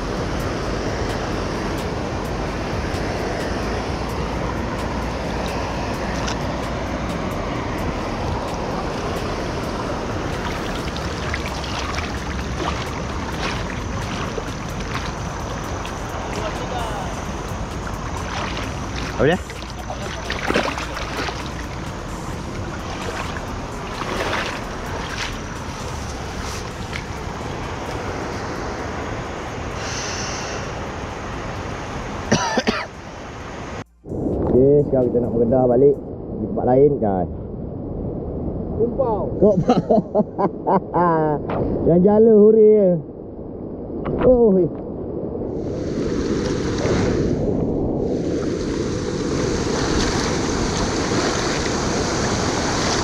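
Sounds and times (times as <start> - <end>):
wind buffeting microphone: 0.0 - 32.2, 33.2 - 53.0
river water rushing over weir: 0.0 - 33.8, 48.1 - 53.0.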